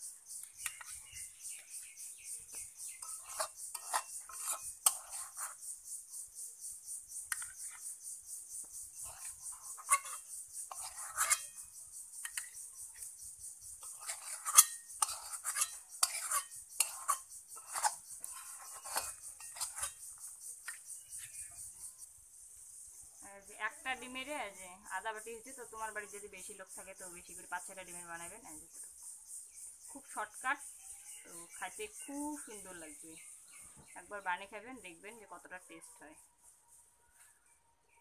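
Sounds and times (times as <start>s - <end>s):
metal spatula scraping a pan: 3.0s - 5.6s, 9.0s - 11.6s, 13.8s - 20.0s.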